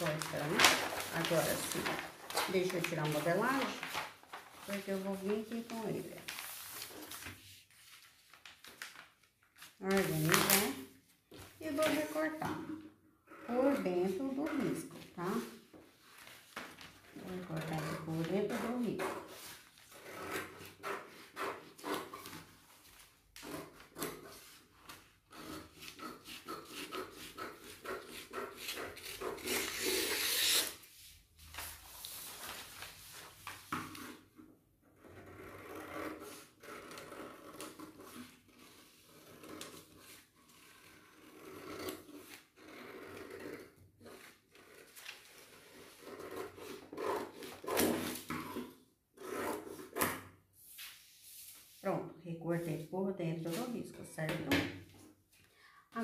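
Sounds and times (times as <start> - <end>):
paper rustling: 0.0 - 12.4, 15.0 - 19.9, 28.6 - 34.3, 44.1 - 48.7.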